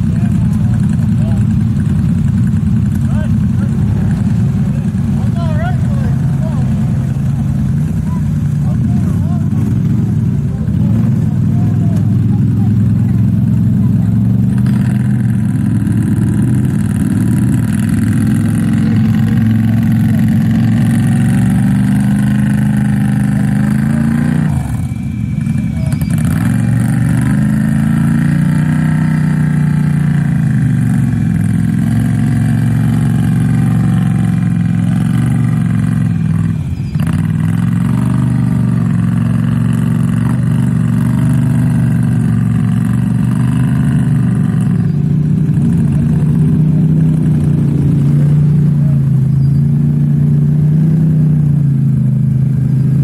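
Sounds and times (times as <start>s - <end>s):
quad engine revving: 0.0s - 53.0s
tyres churning through mud: 0.0s - 53.0s.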